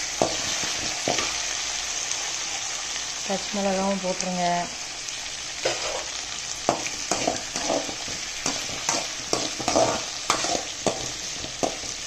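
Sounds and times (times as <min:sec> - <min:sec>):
food sizzling in oil: 0:00.0 - 0:12.0
metal ladle scraping a pan: 0:05.6 - 0:12.0.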